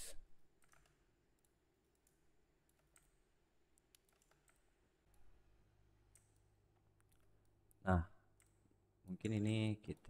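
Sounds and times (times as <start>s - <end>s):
computer mouse clicks: 0.6s - 5.3s, 6.1s - 7.8s.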